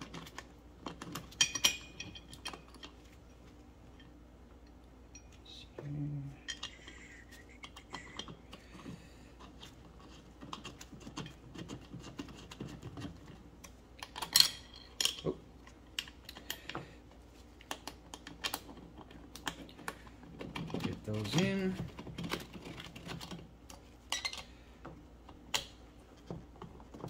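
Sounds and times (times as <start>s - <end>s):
metal clinks: 5.1s - 5.6s.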